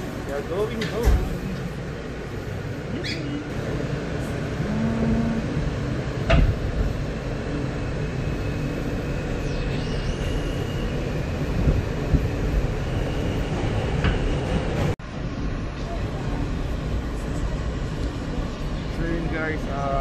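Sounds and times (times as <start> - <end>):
subway car rumble and hum: 0.0 - 20.0
faint high whine: 7.6 - 13.7.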